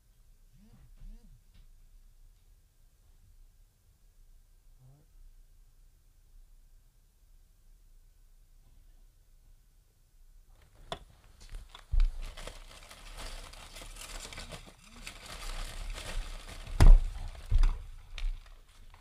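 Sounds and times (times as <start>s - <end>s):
crinkling and rustling: 10.5s - 19.0s.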